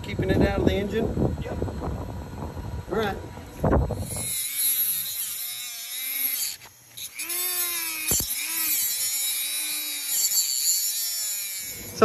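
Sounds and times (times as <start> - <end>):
rotary tool grinding metal: 3.9 - 12.0
sharp click: 8.0 - 8.4.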